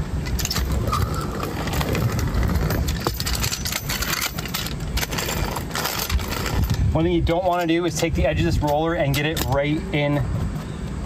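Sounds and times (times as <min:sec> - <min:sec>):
steady low rumble: 0:00.0 - 0:11.0
hand roller rolling over flashing: 0:00.2 - 0:08.1.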